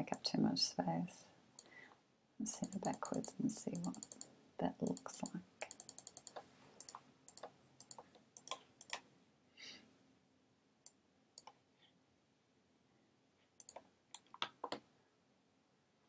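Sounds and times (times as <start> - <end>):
computer mouse clicks: 2.5 - 4.3, 4.9 - 9.0, 10.8 - 11.6, 13.6 - 14.8.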